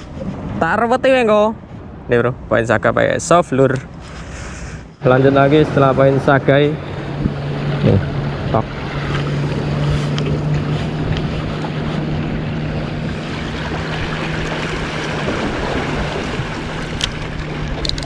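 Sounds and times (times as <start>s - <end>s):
waves: 0.0s - 2.6s, 3.6s - 18.0s
boat engine humming: 3.6s - 18.0s
wind noise on microphone: 6.8s - 18.0s.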